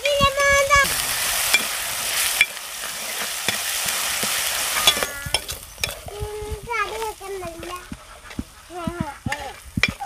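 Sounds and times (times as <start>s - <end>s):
vegetables sizzling in hot oil: 0.0s - 10.0s
ladle scraping and tapping pot: 2.4s - 6.1s, 7.0s - 10.0s.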